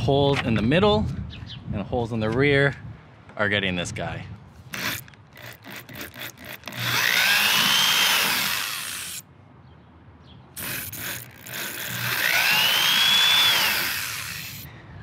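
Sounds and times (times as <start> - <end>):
drill boring through hardtop: 4.7 - 9.2, 10.6 - 14.7
drill motor whining: 4.7 - 9.2, 10.6 - 14.7.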